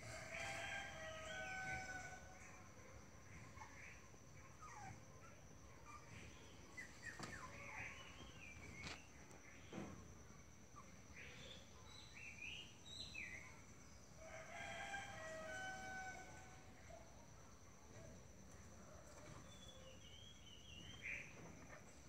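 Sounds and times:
distant rooster crowing: 0.0 - 2.6, 14.2 - 16.7.

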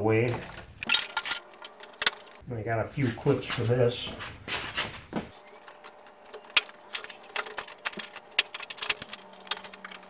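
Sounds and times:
plastic clips clicking and snapping: 5.6 - 10.0.

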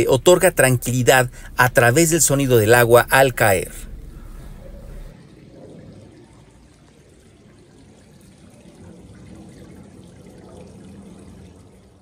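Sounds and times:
fountain water splashing into pool: 5.1 - 12.0.

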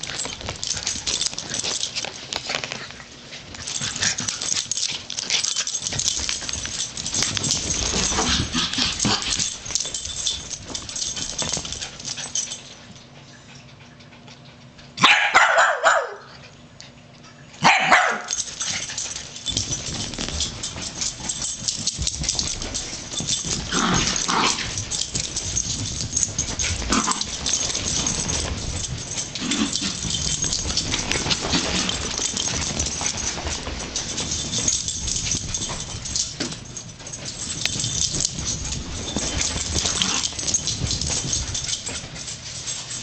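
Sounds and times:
dogs scuffling: 0.0 - 13.0, 17.6 - 43.0
dogs barking: 15.0 - 16.4, 17.6 - 18.5.

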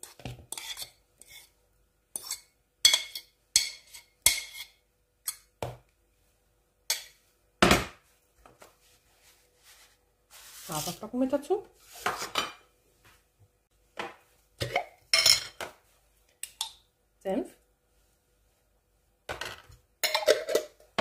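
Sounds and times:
fork scraping ceramic plate: 0.0 - 1.6, 2.2 - 5.4.

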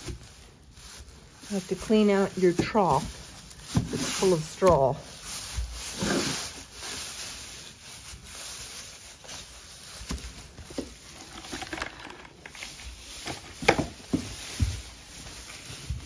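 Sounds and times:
straw rustling and crackling: 0.0 - 16.0.

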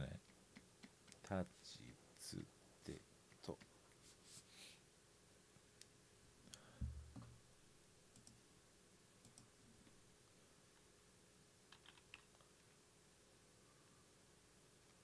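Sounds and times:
low thump: 6.8 - 7.4
faint computer mouse clicks: 8.1 - 8.4.

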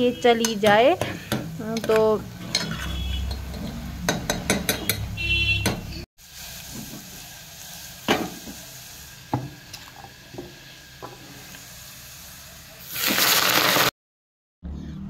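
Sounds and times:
ladle scraping a metal pot: 2.4 - 3.9
metallic squeak: 2.5 - 3.4
oil sizzling: 6.2 - 13.9.

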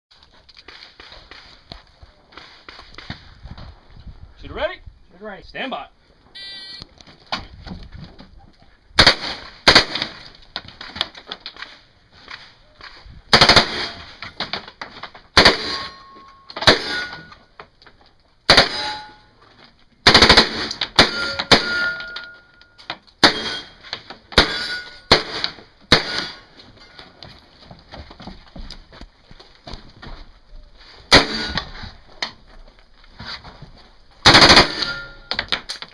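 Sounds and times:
submachine gun bursts: 34.2 - 35.4.

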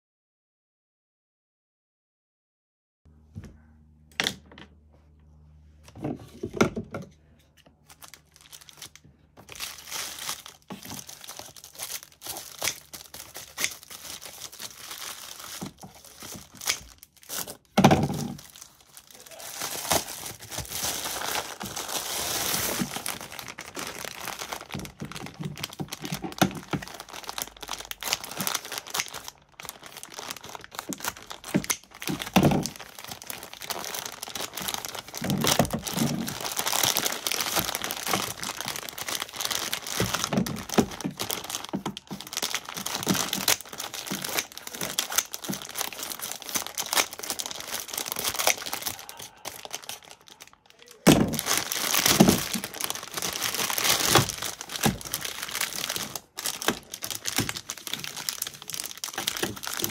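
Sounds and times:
plastic packaging crinkling: 7.6 - 59.9.

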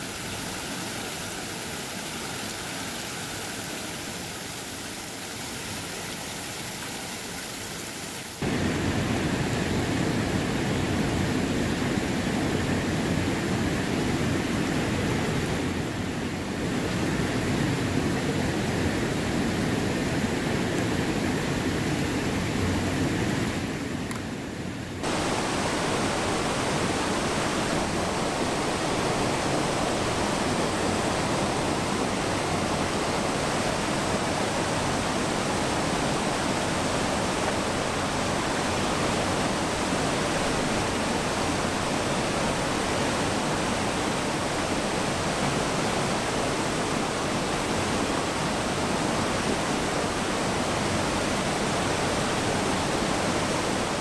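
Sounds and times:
waterfall rushing into pool: 0.0 - 24.2, 25.0 - 54.0.

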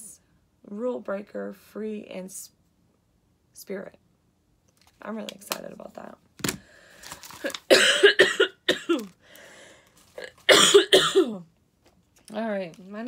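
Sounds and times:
woman coughing: 7.7 - 9.1, 10.2 - 11.5.

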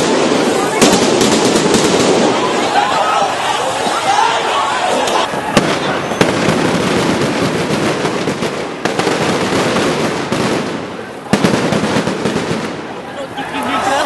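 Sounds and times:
explosive bangs: 0.0 - 13.1
people shouting: 0.4 - 6.5, 13.2 - 14.0.

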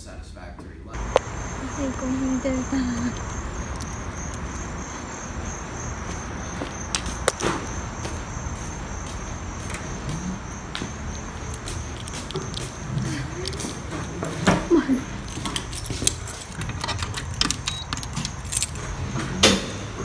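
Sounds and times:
sharp clicks: 1.0 - 1.5
insects trilling: 1.0 - 20.0.

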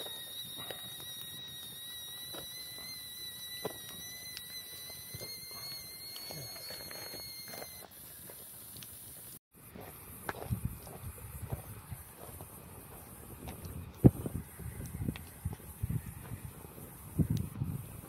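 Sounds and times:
high-pitched whistle: 0.0 - 9.2.

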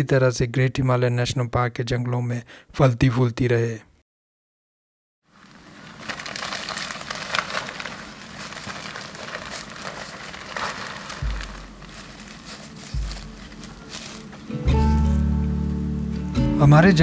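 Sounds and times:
plastic tarp crinkling: 5.3 - 15.2
leaves crunching underfoot: 5.3 - 15.8
low thumps: 9.4 - 15.2.

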